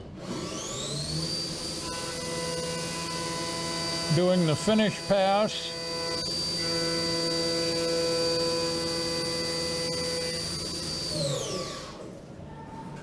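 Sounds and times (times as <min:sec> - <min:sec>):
milling spindle whine: 0:00.6 - 0:12.0.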